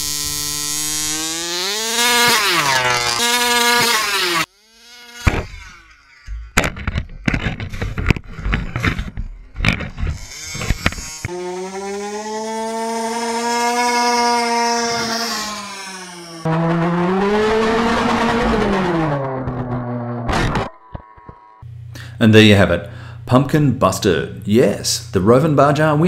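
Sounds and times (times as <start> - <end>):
toy buggy engine buzzing: 0.0 - 19.6
impact knocks and clatter: 5.2 - 5.6, 6.3 - 11.1.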